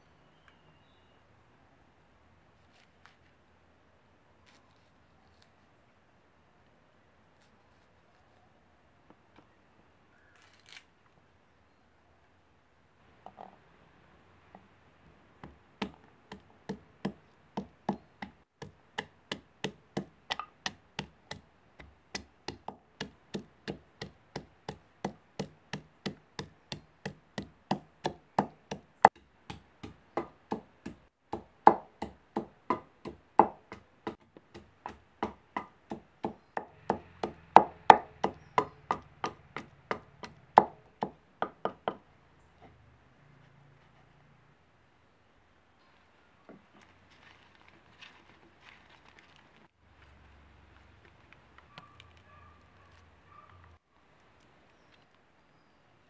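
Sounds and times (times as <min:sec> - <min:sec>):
pestle pounding in mortar: 0:15.4 - 0:42.0.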